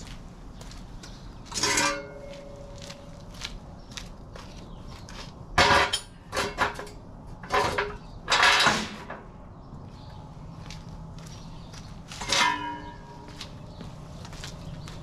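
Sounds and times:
metal jack stands clanking: 5.6s - 9.2s.

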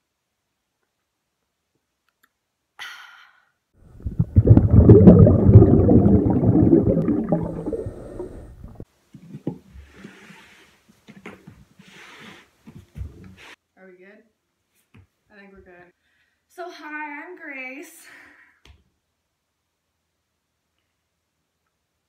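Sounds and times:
deep rough rumbling: 3.9s - 8.8s.

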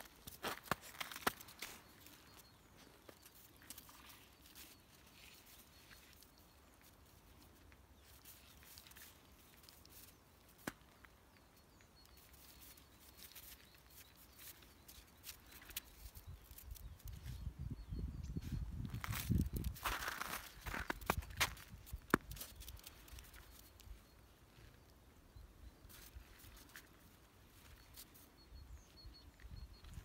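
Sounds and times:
footsteps crunching in snow: 0.0s - 7.2s, 18.8s - 23.8s.

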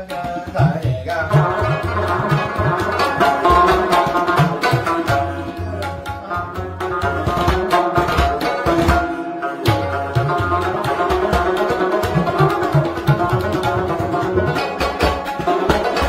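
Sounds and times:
rhythmic drum pattern: 0.0s - 16.0s
sustained melody: 1.6s - 11.0s.

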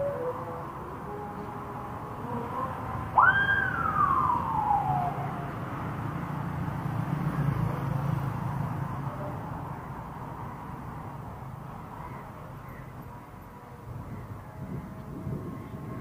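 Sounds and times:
whistle gliding in pitch: 3.2s - 5.2s.

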